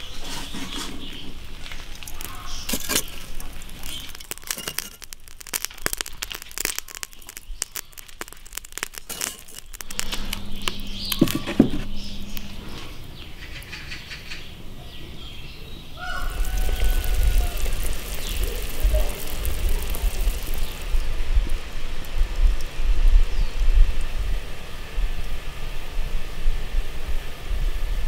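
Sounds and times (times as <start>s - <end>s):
charcoal crackling and popping: 0.0s - 13.7s, 16.0s - 24.1s
tongs knocking charcoal: 1.8s - 12.4s, 16.0s - 20.9s.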